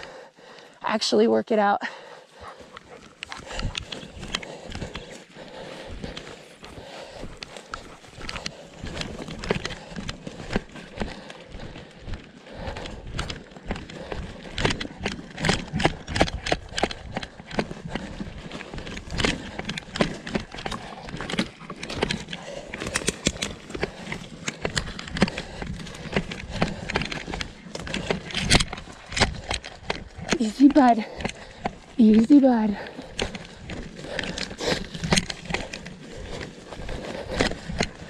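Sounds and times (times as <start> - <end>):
footsteps through undergrowth: 1.9 - 38.0
brush rustling: 2.2 - 38.0.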